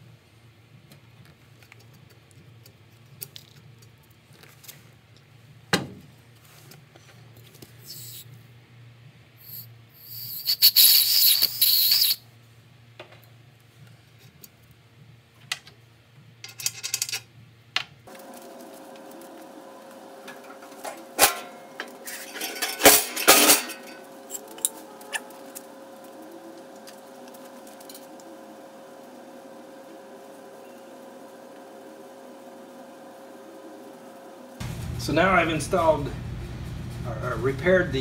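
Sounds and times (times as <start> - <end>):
steady hum: 7.5 - 14.2, 17.4 - 38.0
aerosol can hissing: 7.8 - 8.3, 9.4 - 12.2.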